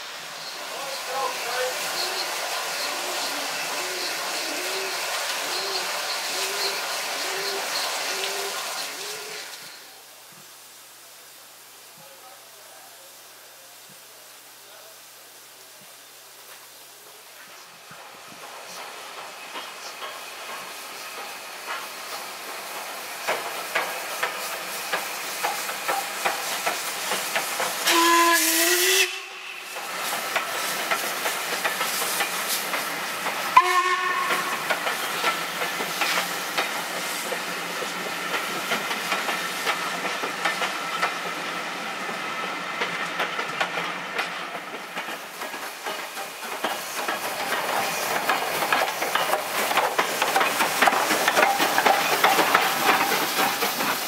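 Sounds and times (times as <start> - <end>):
steam locomotive hissing and chuffing: 0.0 - 54.0
steam whistle: 27.8 - 29.8, 33.6 - 34.7.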